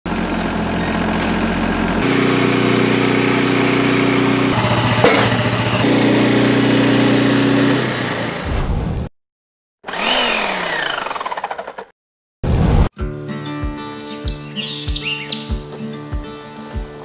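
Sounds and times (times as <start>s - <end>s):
sawmill engine running: 0.1s - 8.5s, 9.8s - 11.9s
tractor diesel engine: 0.1s - 8.5s, 9.9s - 11.9s.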